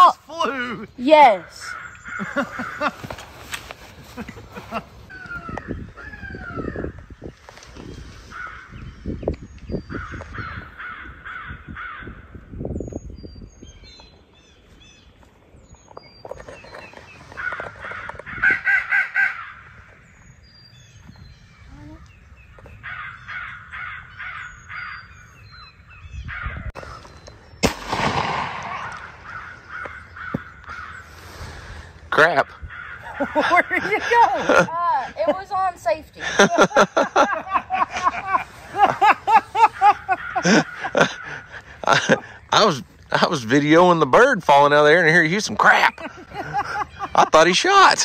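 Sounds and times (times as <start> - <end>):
crows cawing: 1.4 - 3.3, 8.3 - 8.8, 9.9 - 12.4, 17.3 - 20.0, 22.5 - 25.2, 26.2 - 26.7, 27.9 - 31.3, 32.2 - 35.1, 37.8 - 42.4
sharp crack: 27.2 - 30.8.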